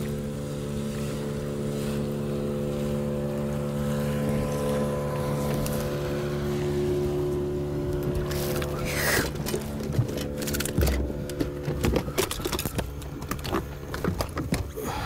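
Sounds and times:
boat motor running: 0.0 - 15.0.

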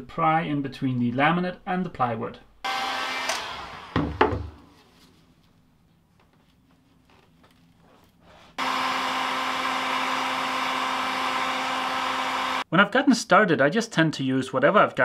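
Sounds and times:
heat gun blowing hum: 2.7 - 4.6, 8.6 - 12.6.

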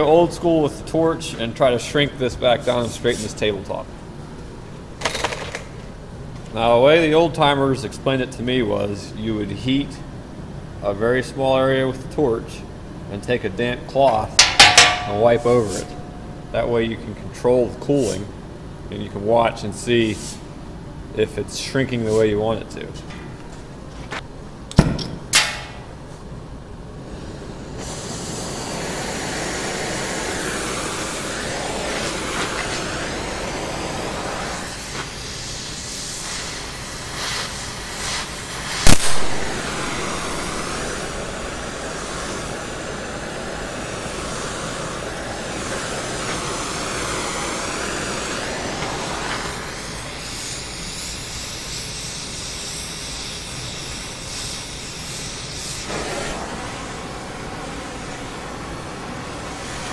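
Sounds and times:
torch flame hissing: 14.4 - 16.1, 27.0 - 59.9
sharp pop: 38.8 - 39.6.

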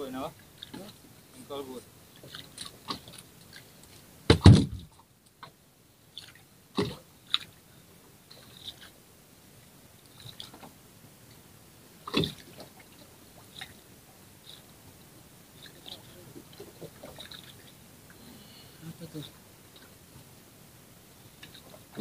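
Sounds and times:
knocks and thumps on boat: 4.3 - 4.9, 21.8 - 22.0.

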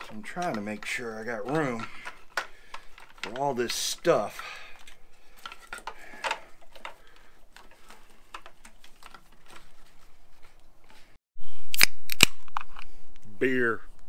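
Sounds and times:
plastic connectors clicking: 0.0 - 4.0, 4.7 - 9.9.

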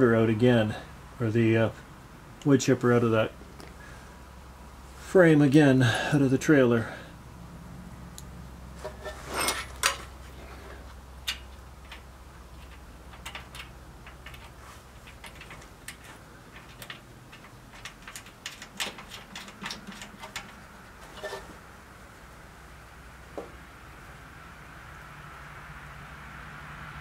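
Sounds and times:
metallic clicks of nuts and washers: 8.2 - 21.5.

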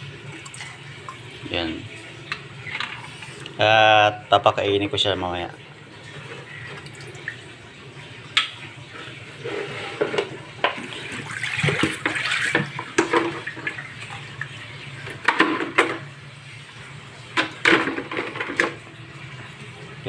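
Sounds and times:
water sloshing in plastic container: 10.3 - 14.3.

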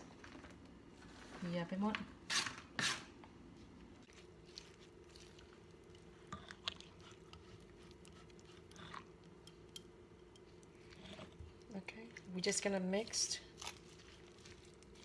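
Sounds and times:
low steady hum: 3.2 - 15.0.

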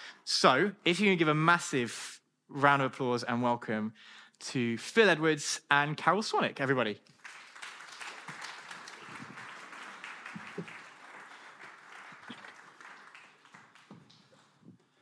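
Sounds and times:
congregation applauding: 7.1 - 15.0.

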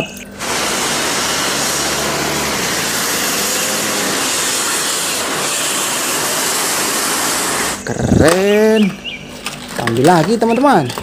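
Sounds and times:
street traffic hiss: 0.0 - 8.1.

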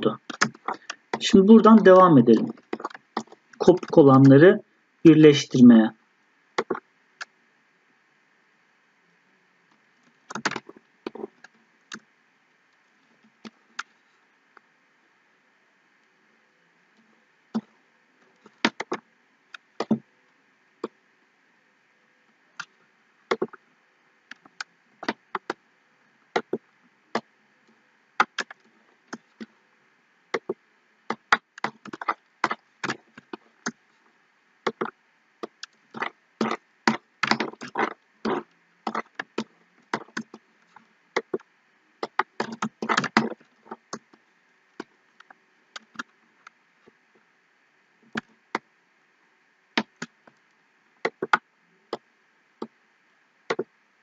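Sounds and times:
computer mouse clicking: 0.2 - 1.8, 2.4 - 4.0, 6.6 - 7.3, 10.3 - 12.0, 18.4 - 20.0, 23.3 - 23.6, 24.3 - 25.6, 26.4 - 27.2, 28.2 - 29.5, 30.4 - 33.8, 34.7 - 40.4, 41.2 - 44.1, 51.1 - 52.0.

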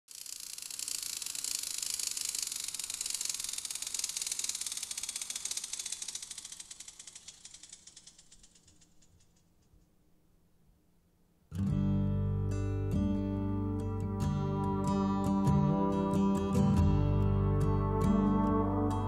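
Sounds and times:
rapid high-pitched clicking clatter: 0.1 - 9.9.

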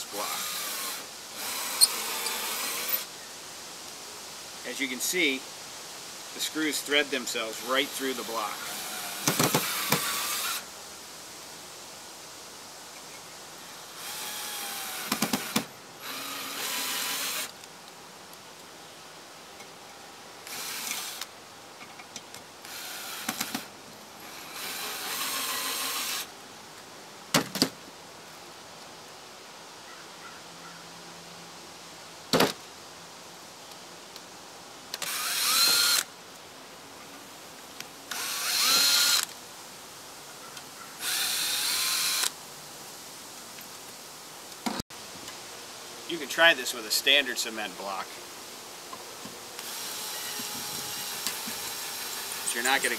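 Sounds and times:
power drill driving screws: 0.2 - 3.1, 7.6 - 10.7, 14.0 - 17.5, 20.4 - 21.3, 22.6 - 26.3, 35.0 - 36.1, 38.1 - 39.3, 41.0 - 42.3, 49.6 - 52.9.

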